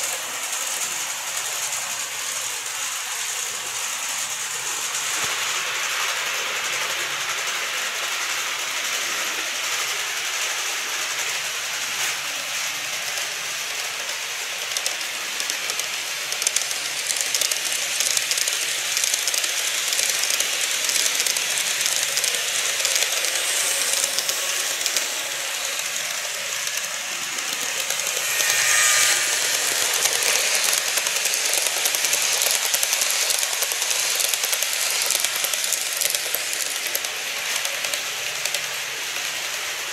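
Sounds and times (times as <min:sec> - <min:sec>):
model train wheels clicking: 0:00.0 - 0:39.9
steady hiss: 0:00.0 - 0:39.9
faint whine: 0:22.5 - 0:32.3.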